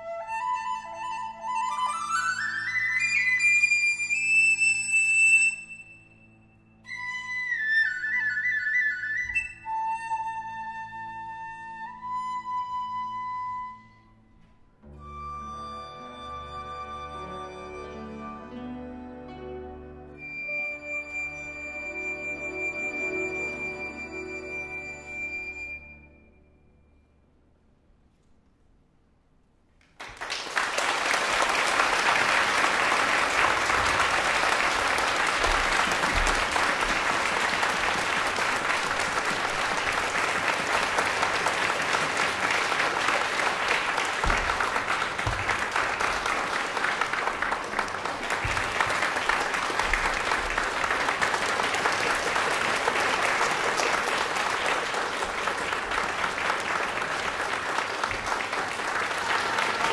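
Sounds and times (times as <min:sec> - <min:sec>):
audience applauding: 0:29.8 - 0:59.9.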